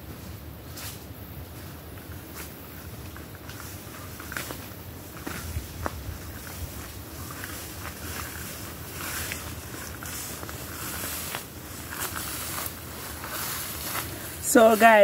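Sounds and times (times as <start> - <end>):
footsteps through tall grass: 0.0 - 15.0
wooden pole brushing grass: 3.4 - 15.0.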